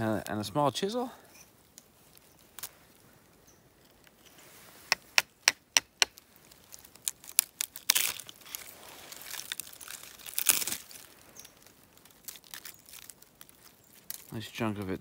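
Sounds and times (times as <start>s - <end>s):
fungus crunching and tearing: 1.6s - 4.3s, 4.9s - 15.0s
hammer tapping chisel: 4.9s - 6.1s.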